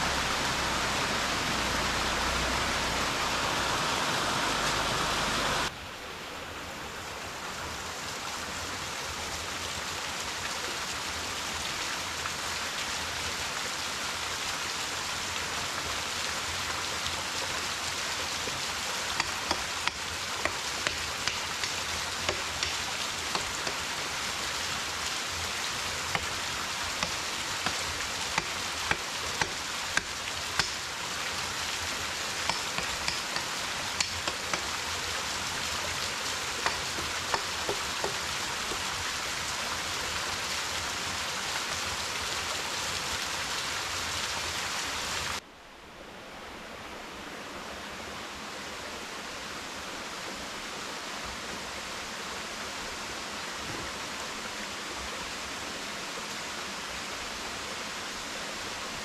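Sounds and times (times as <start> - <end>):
rain on foliage: 0.0 - 5.7, 7.2 - 45.4.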